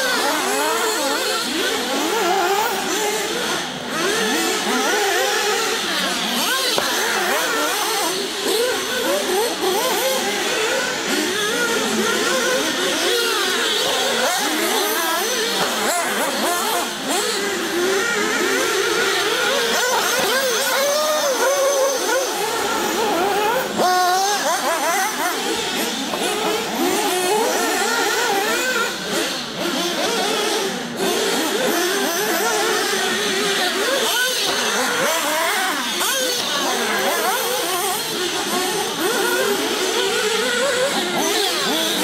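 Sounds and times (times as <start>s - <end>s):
rc car engines whining: 0.0s - 42.0s.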